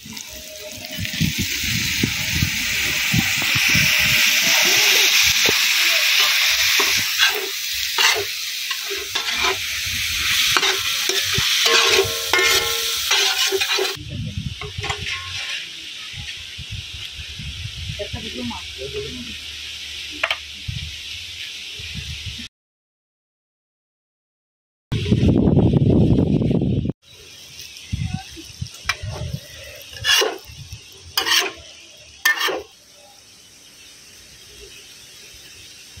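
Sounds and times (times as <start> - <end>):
food sizzling in a pan: 0.0 - 22.5, 27.0 - 36.0
steel spatula scraping a pan: 3.9 - 14.0, 14.6 - 15.8, 28.9 - 32.8.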